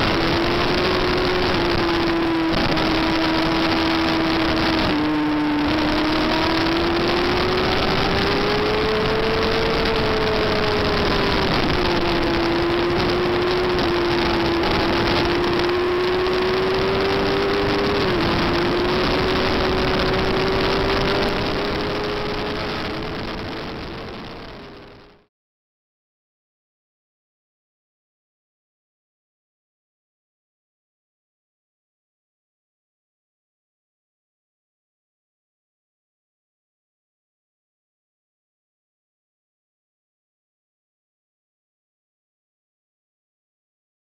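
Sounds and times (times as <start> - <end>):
motorcycle engine at high revs: 0.0 - 25.2
wind rushing over microphone: 0.0 - 25.2.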